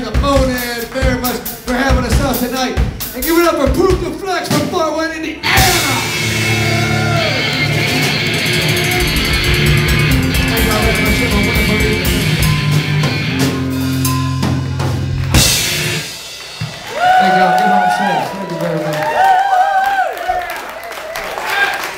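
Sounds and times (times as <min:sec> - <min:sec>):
drum kit: 0:00.0 - 0:18.3
electric guitar: 0:05.4 - 0:17.2.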